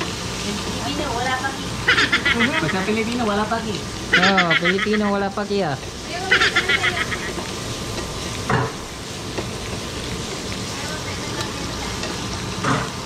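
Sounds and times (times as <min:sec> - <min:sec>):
meat sizzling in a frying pan: 0:00.0 - 0:13.0.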